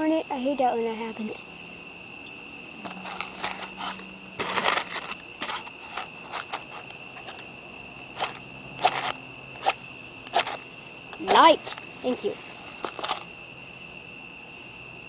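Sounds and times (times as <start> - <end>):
insect trill: 0.0 - 15.0
scratching and crackling: 2.8 - 7.5, 8.2 - 13.3.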